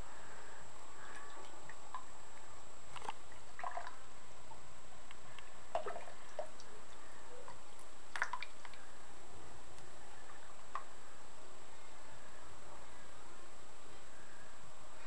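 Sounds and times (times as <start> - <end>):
faint steady hiss: 0.0 - 15.0
water splashes and drips: 7.5 - 8.8.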